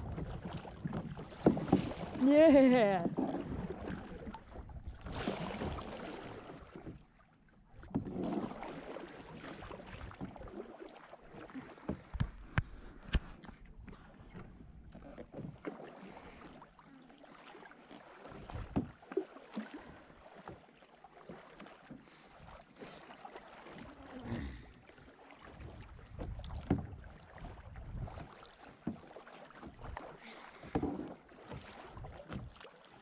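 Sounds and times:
water splashing against kayak: 0.0s - 33.0s
wind on microphone: 25.8s - 28.3s
knocks on kayak: 30.7s - 31.2s.

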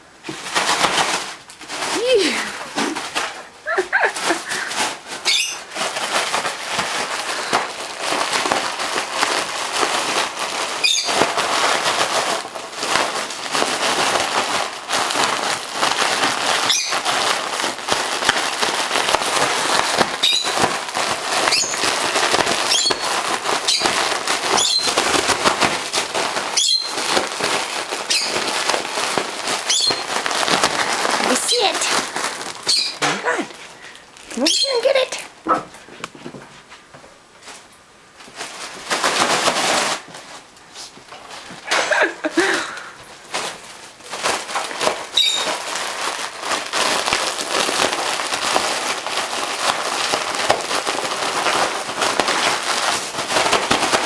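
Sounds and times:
foil balloon crinkling: 0.0s - 54.0s
dog squeaking: 5.2s - 5.6s, 10.8s - 11.2s, 20.2s - 20.6s, 21.5s - 21.9s, 24.5s - 25.0s, 26.6s - 26.9s, 29.7s - 30.1s, 32.6s - 33.2s, 34.3s - 35.6s, 45.2s - 45.5s.

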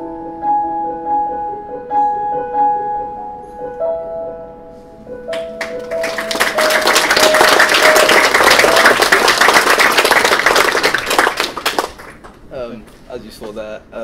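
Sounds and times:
slow piano notes: 0.0s - 12.5s
audience applause: 5.3s - 12.4s.

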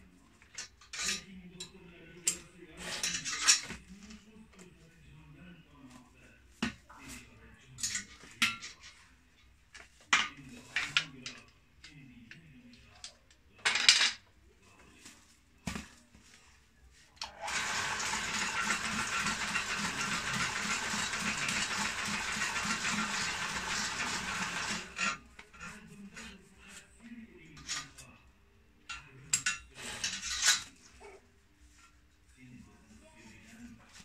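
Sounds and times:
sewing machine running rhythmically: 17.4s - 25.1s.

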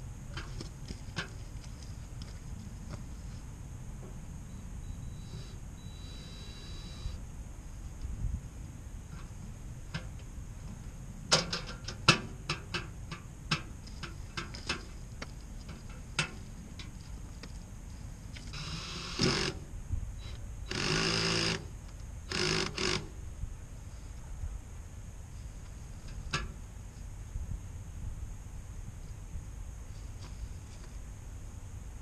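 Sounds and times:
cordless drill running: 18.5s - 19.6s, 20.7s - 21.6s, 22.3s - 23.0s.

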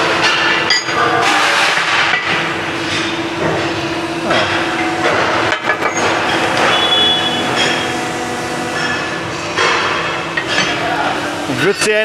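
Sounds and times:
loud machinery noise: 0.0s - 12.0s
short high squeal: 6.6s - 7.9s.

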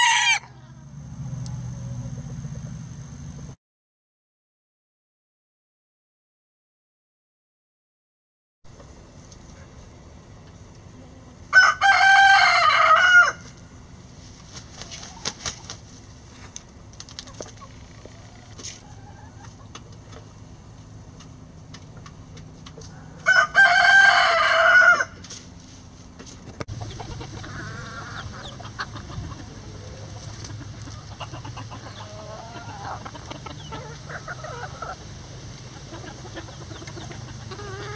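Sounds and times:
rooster crowing: 0.0s - 0.6s, 11.5s - 13.5s, 22.9s - 25.2s
hens clucking: 14.5s - 16.0s, 17.2s - 20.4s, 26.4s - 37.9s.

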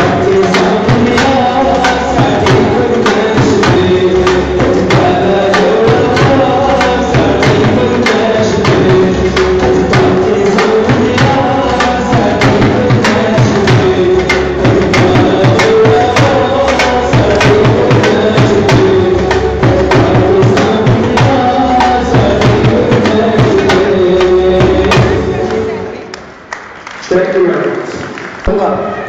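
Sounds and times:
barrel drum beaten with sticks: 0.0s - 25.4s.

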